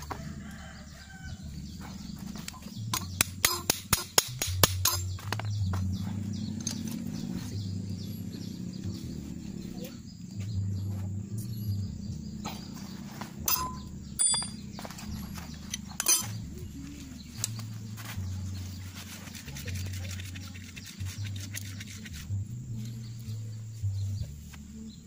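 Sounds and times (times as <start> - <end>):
steady low hum: 0.0 - 25.0
metal tools clinking: 4.8 - 5.5, 6.5 - 7.0, 13.4 - 16.6.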